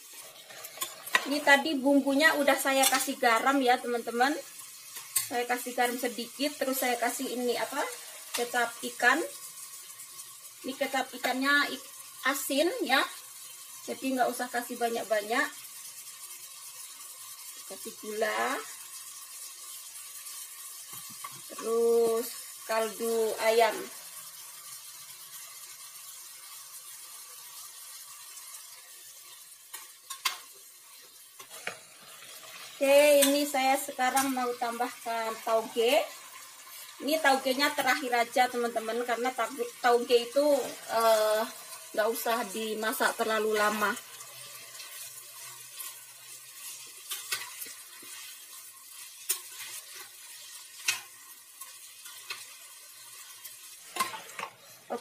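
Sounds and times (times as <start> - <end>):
vegetables sizzling in a pot: 0.0 - 55.0
metal spatula scraping a pot: 0.1 - 1.6, 46.6 - 55.0.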